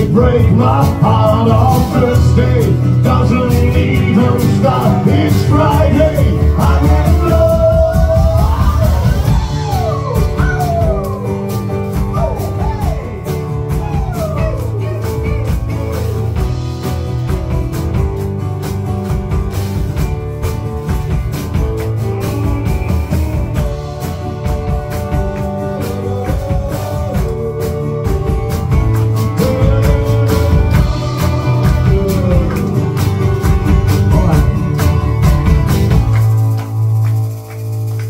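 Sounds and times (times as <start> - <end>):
person singing: 0.0 - 16.6, 22.2 - 35.1
drum kit: 0.0 - 38.0
strummed acoustic guitar: 0.0 - 38.0.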